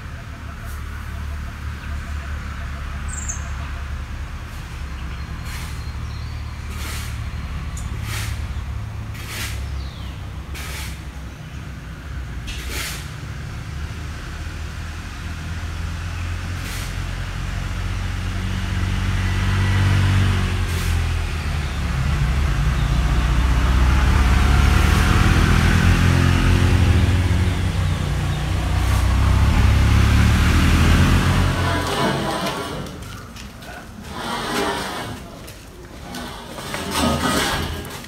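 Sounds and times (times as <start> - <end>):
brief hiss: 12.5 - 13.1
vehicle engine running: 13.4 - 33.4.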